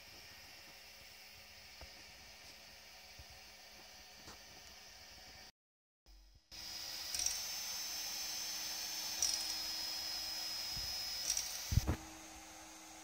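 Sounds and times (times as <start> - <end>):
stepper motors whining: 6.5 - 13.0.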